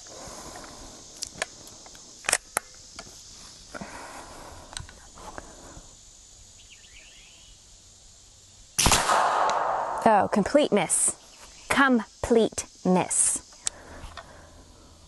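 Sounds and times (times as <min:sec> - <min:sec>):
air rifle cocking clicks: 0:01.2 - 0:03.1, 0:08.8 - 0:09.7
rifle handling noise: 0:02.2 - 0:03.1.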